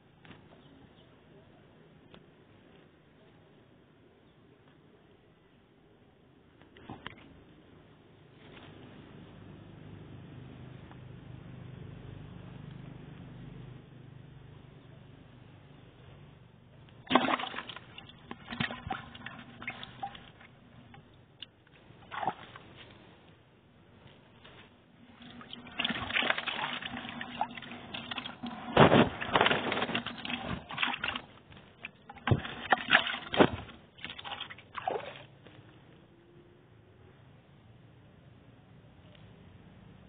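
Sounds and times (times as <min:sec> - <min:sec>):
fish splashing in bucket: 0:17.0 - 0:21.0, 0:22.0 - 0:22.6, 0:25.2 - 0:35.4.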